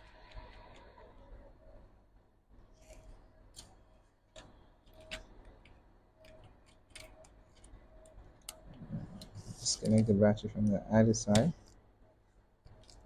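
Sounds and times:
fingers clicking and tapping electronics: 0:03.5 - 0:11.8.

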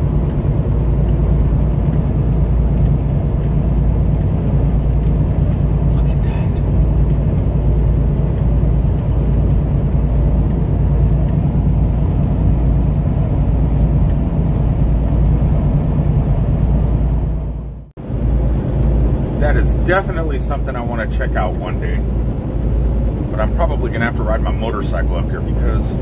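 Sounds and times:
truck engine and road noise: 0:00.0 - 0:26.0.

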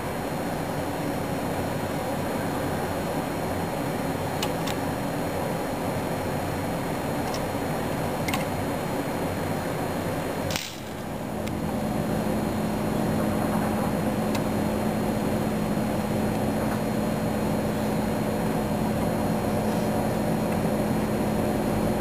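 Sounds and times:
steady low hum: 0:00.0 - 0:22.0
sharp click: 0:10.5 - 0:11.6.

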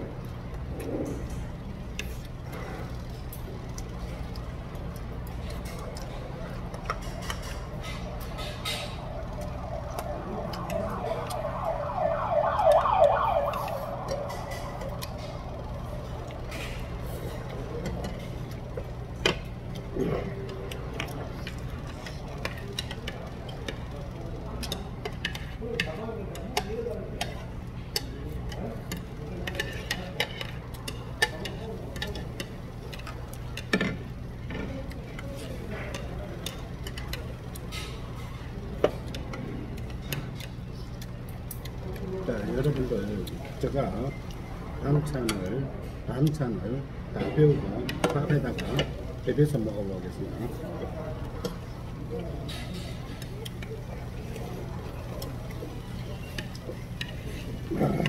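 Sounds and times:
chopsticks clicking against a bowl: 0:03.2 - 0:11.4, 0:13.5 - 0:44.4, 0:50.8 - 0:58.0
low hum: 0:07.5 - 0:17.1
chopsticks scraping against bowls: 0:24.7 - 0:33.8.

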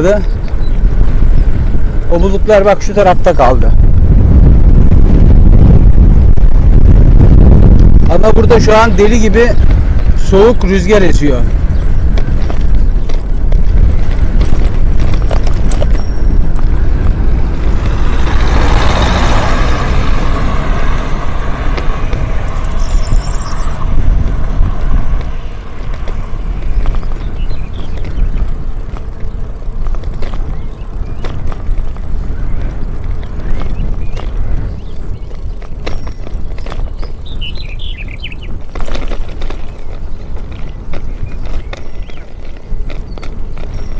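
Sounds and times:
strong wind buffeting microphone: 0:00.0 - 0:43.9.

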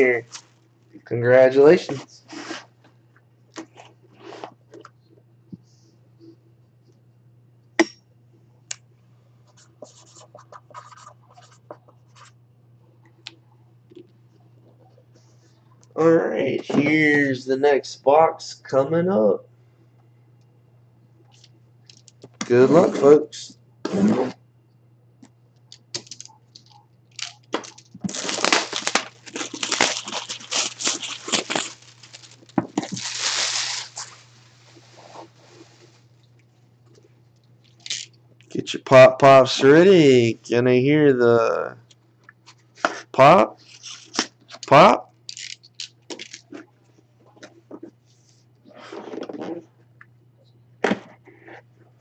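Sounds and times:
steady low hum: 0:00.0 - 0:52.0
plastic shrink wrap crinkling and tearing: 0:26.0 - 0:35.9, 0:37.6 - 0:38.1, 0:43.6 - 0:44.3, 0:45.3 - 0:46.5.

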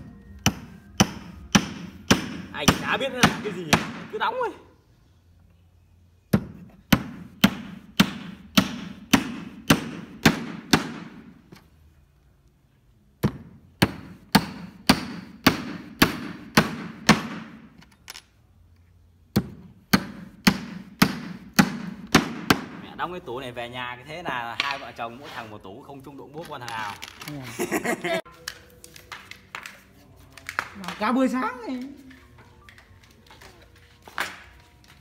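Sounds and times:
hammer driving nails into wood: 0:00.5 - 0:04.1, 0:06.3 - 0:11.3, 0:13.2 - 0:17.8, 0:19.3 - 0:22.8.

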